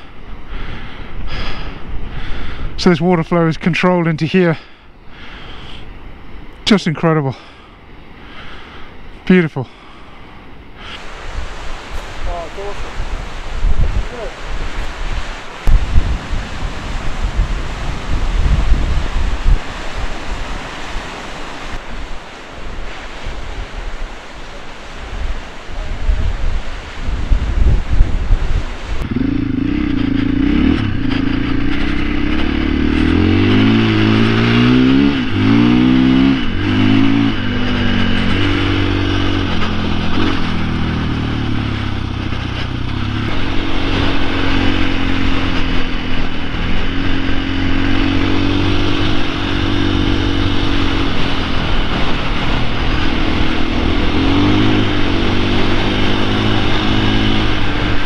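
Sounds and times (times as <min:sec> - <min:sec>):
motorcycle engine revving: 0:29.0 - 0:58.0.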